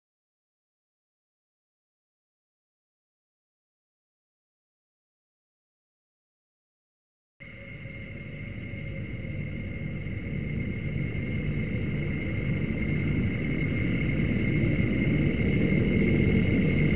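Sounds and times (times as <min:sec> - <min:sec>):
thin high whine: 0:07.4 - 0:16.9
low rumble: 0:07.6 - 0:16.9.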